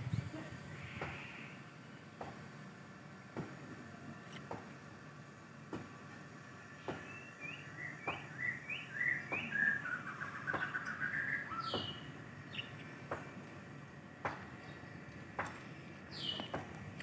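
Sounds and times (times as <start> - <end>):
songbird chirping and warbling: 0.1 - 2.1, 6.7 - 13.1, 14.5 - 16.6.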